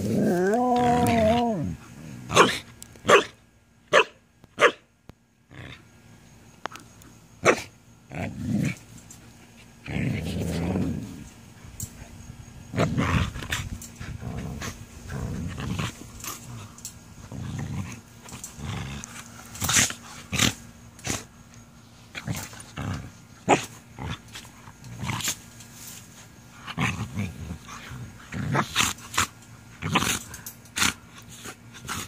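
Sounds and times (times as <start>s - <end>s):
puppies growling: 0.0s - 2.7s, 9.8s - 11.4s, 12.7s - 21.3s.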